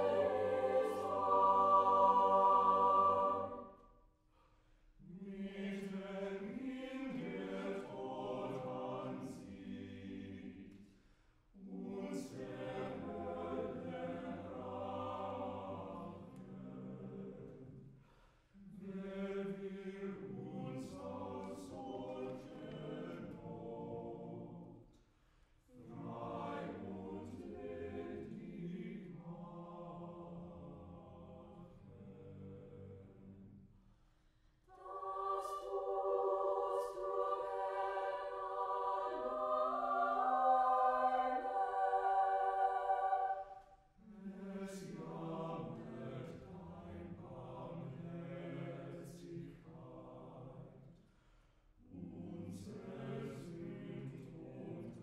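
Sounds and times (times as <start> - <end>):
chamber choir singing: 0.0 - 3.9, 5.0 - 18.0, 18.6 - 24.9, 25.7 - 33.6, 34.6 - 51.0, 51.8 - 55.0.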